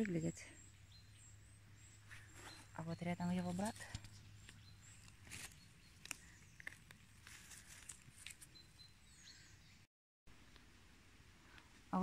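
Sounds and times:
faint footsteps on dry leaves: 2.0s - 8.7s.

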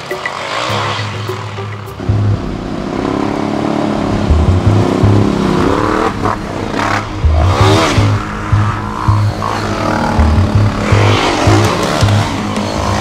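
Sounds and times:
dirt bike engine revving: 0.0s - 13.0s
quad bike engine revving: 2.0s - 13.0s.

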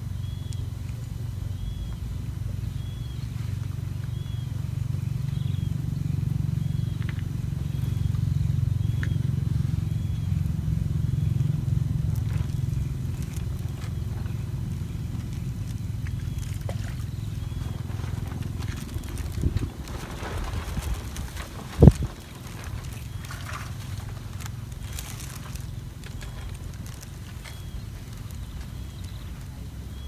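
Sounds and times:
wind buffeting microphone: 0.2s - 30.0s.

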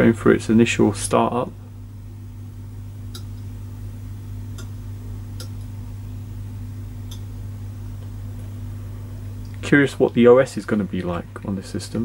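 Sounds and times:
low electronic hum: 0.0s - 12.0s
hard drive ticks: 3.0s - 3.5s, 4.5s - 5.7s, 7.0s - 7.4s.

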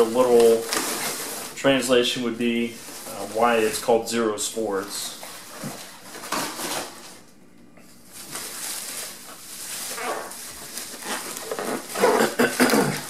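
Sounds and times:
bubble wrap crinkling: 0.0s - 7.2s, 8.0s - 13.0s.

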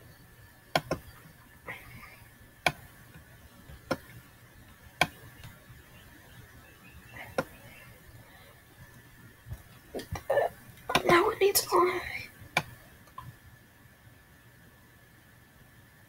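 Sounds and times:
faint steady hum: 0.0s - 16.0s
sharp short clicks: 0.8s - 1.1s.

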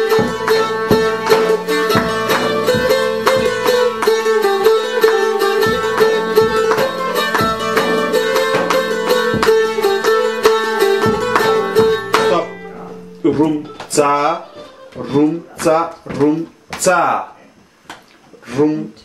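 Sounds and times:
strummed lute with drone: 0.0s - 15.0s.

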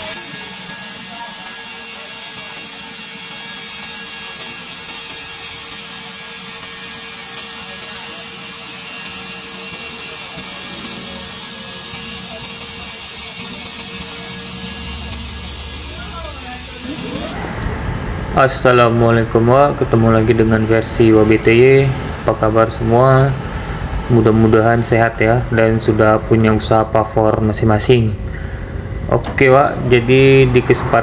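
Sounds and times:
grinder grinding metal: 0.0s - 17.4s
faint steady hum: 14.8s - 31.0s.

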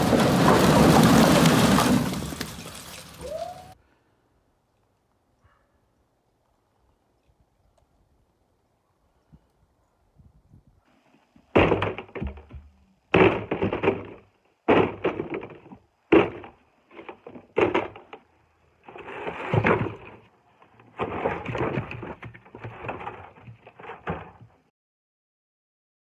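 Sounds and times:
logs thudding into wheelbarrow: 0.0s - 3.4s, 11.4s - 24.7s
logs knocking and clattering: 11.5s - 24.6s.

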